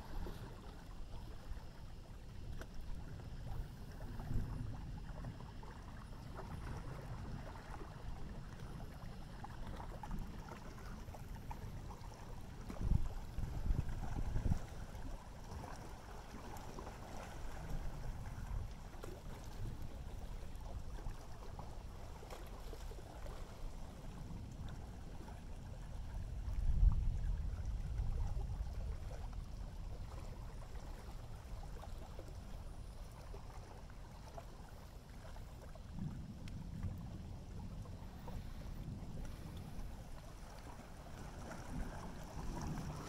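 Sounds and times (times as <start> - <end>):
water: 0.0 - 43.0
wind: 0.0 - 43.0.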